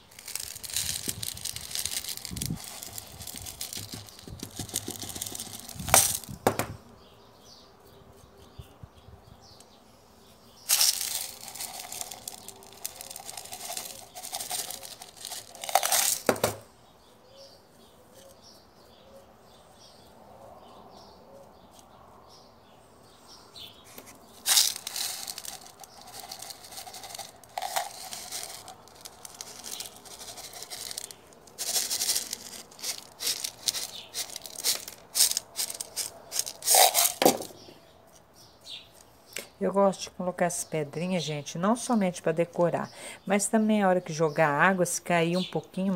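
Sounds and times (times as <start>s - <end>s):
pebbles rattling out of metal tin: 0.0s - 6.7s, 10.6s - 16.7s, 24.3s - 37.7s
stones clicking: 0.0s - 6.8s, 10.7s - 16.7s, 24.0s - 37.7s.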